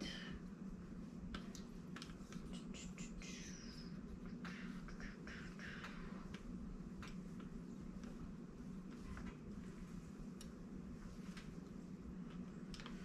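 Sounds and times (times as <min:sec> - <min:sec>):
steady low hum: 0:00.0 - 0:13.0
fabric rustling and scraping: 0:07.3 - 0:12.0.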